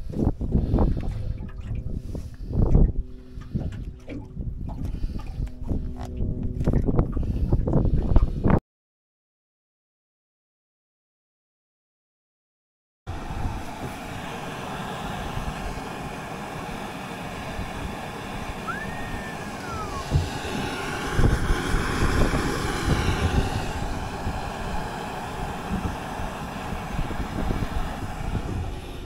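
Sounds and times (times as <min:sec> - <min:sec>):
wind buffeting microphone: 0:00.0 - 0:08.6, 0:13.1 - 0:29.0
gas stove burner roaring: 0:13.1 - 0:29.0
falling whistle: 0:18.6 - 0:20.2.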